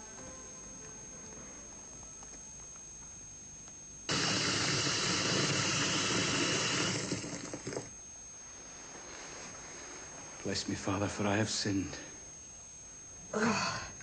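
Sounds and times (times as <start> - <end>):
water gushing from tap: 4.1 - 7.9.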